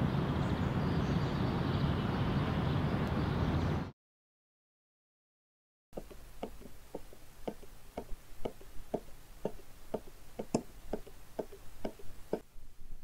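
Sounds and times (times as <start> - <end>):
steady footsteps: 6.0 - 12.4.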